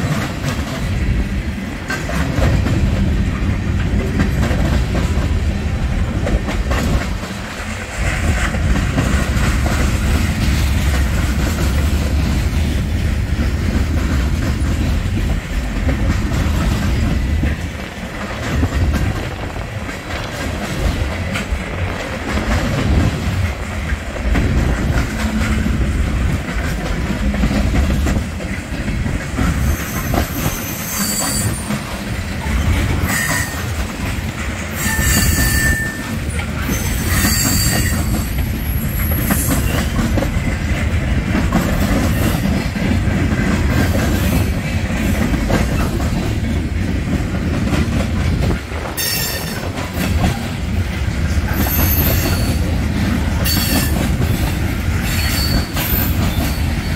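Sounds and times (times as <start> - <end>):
train wheels rumbling and clicking: 0.0 - 56.9
wheel squeals: 29.6 - 31.8, 34.7 - 40.0, 55.0 - 56.9.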